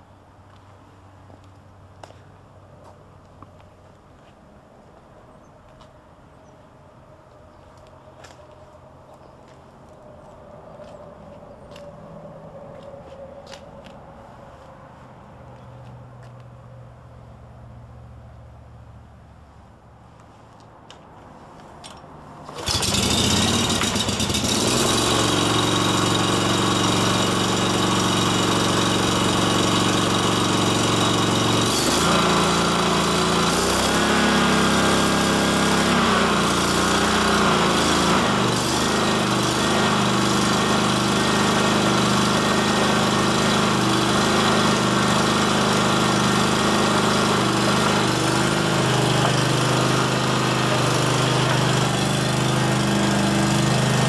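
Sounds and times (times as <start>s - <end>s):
mower engine starting and running: 21.9s - 54.0s.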